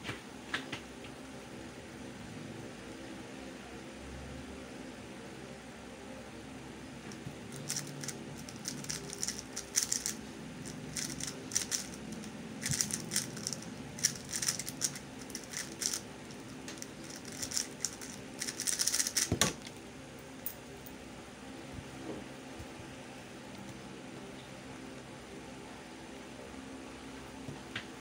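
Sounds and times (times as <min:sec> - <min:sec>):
electric fan hum: 0:00.0 - 0:28.0
speed cube clicking turns: 0:07.5 - 0:19.6.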